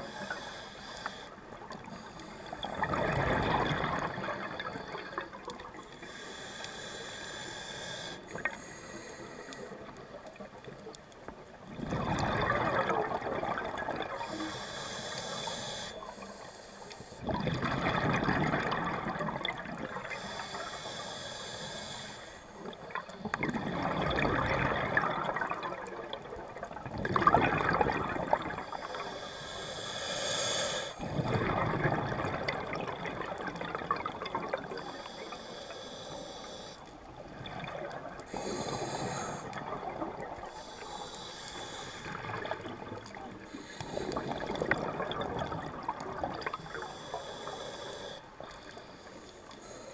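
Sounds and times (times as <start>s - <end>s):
regulator breathing hiss: 0.0s - 2.5s, 5.9s - 9.9s, 14.2s - 17.2s, 20.0s - 22.6s, 28.6s - 31.0s, 34.8s - 36.9s, 38.3s - 39.6s, 40.6s - 42.2s, 46.6s - 49.9s
exhaled air bubbling: 0.0s - 20.7s, 22.6s - 49.6s.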